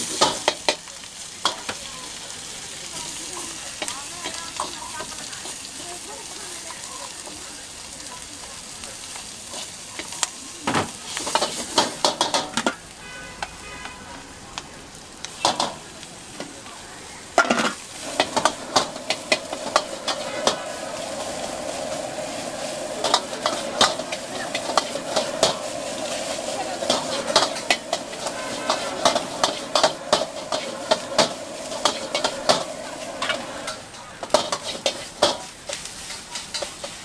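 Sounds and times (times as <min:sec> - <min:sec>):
vegetables sizzling in hot oil: 0:00.0 - 0:37.0
metal ladle scraping a wok: 0:17.4 - 0:37.0.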